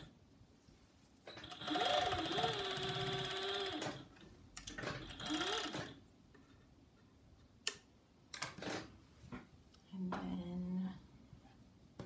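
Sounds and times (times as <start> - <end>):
overlock machine stitching: 1.3 - 4.1, 4.7 - 6.0.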